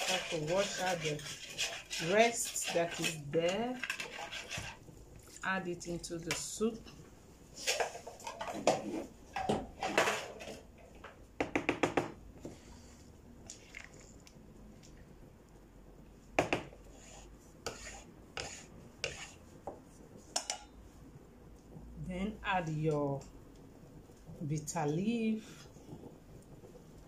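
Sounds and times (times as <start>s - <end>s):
wooden spoon stirring soup: 0.0s - 5.4s, 6.3s - 15.1s, 16.3s - 21.9s.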